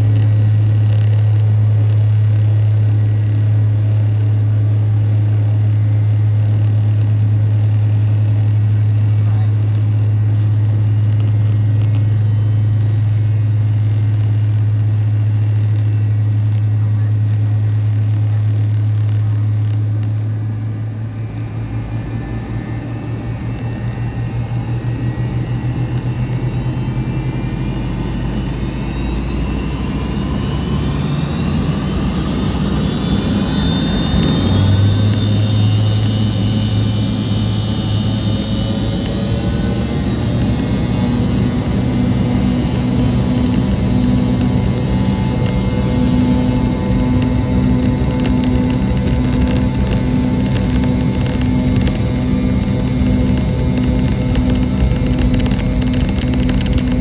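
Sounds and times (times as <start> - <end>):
jet engines spooling up: 20.0 - 57.0.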